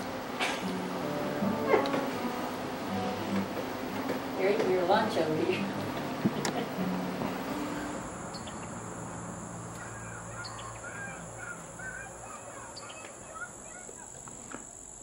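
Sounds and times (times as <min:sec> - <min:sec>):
high-pitched insect drone: 0:06.7 - 0:15.0
bird chirps: 0:08.3 - 0:08.8, 0:09.8 - 0:14.2.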